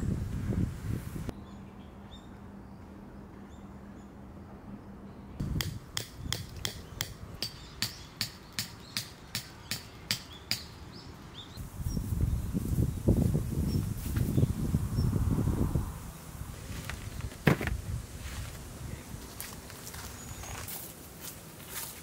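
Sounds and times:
hammer driving a tent peg: 0:05.4 - 0:10.7.

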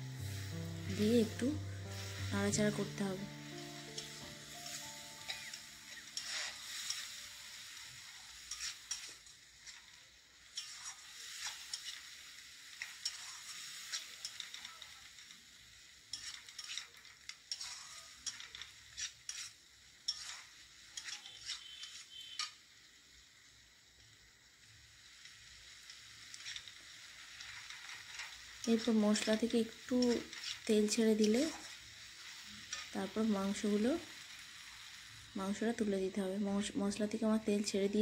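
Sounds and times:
paste sizzling in oil: 0:00.0 - 0:38.0
metal spatula scraping a pan: 0:00.1 - 0:15.0, 0:16.1 - 0:22.6, 0:26.3 - 0:33.6.

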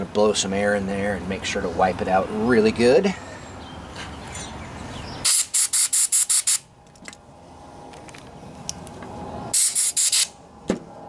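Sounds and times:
air blow gun hissing blasts: 0:05.2 - 0:06.6, 0:09.5 - 0:10.4.

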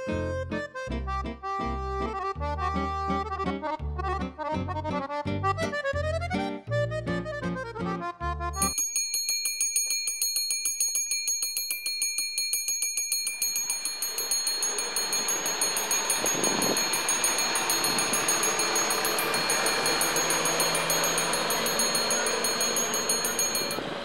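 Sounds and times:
electric warning bell ringing: 0:08.6 - 0:24.0
train arriving: 0:13.2 - 0:24.0.

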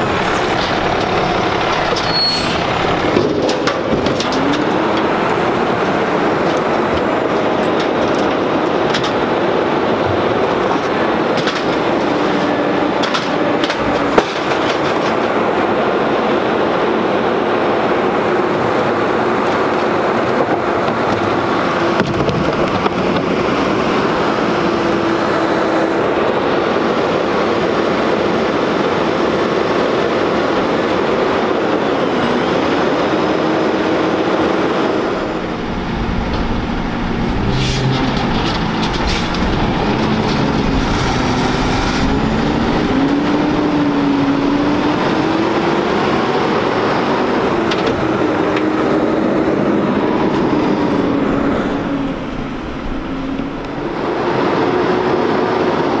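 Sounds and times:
trash carts clanking: 0:00.0 - 0:16.3, 0:34.6 - 0:53.8
garbage truck engine drone: 0:00.0 - 0:56.0.

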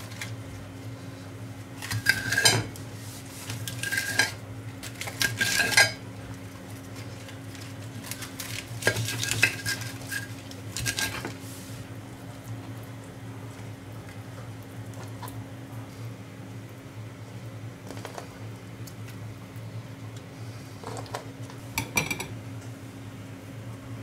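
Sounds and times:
steady low hum: 0:00.0 - 0:24.0
knife scraping a china plate: 0:01.9 - 0:02.7, 0:03.7 - 0:04.4
lettuce leaves pulled apart: 0:07.0 - 0:11.2.

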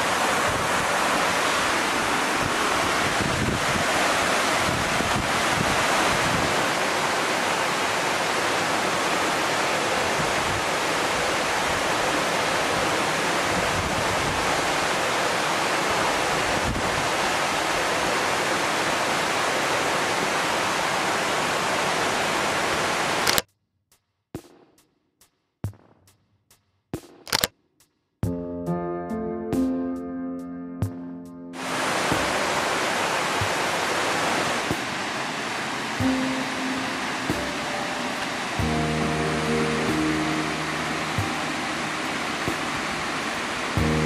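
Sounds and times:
waterfall rushing: 0:00.0 - 0:23.4, 0:31.6 - 0:44.0.

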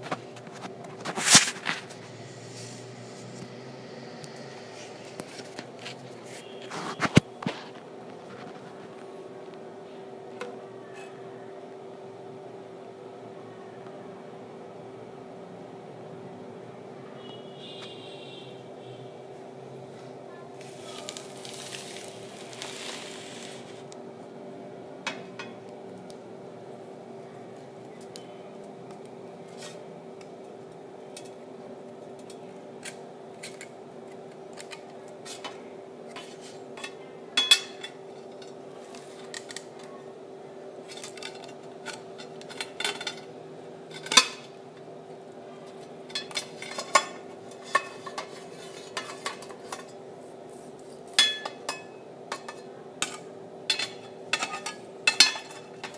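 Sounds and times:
steady low hum: 0:00.0 - 0:13.5
glass plates clinking: 0:37.4 - 0:38.0, 0:53.7 - 0:55.9.

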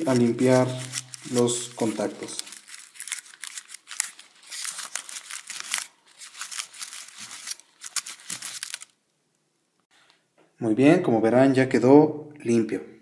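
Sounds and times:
aluminium foil crinkling: 0:00.0 - 0:09.0.

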